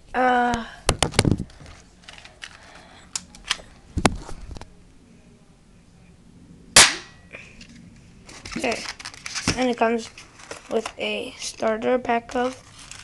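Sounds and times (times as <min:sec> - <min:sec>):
loud sharp snap: 0:06.8 - 0:07.2.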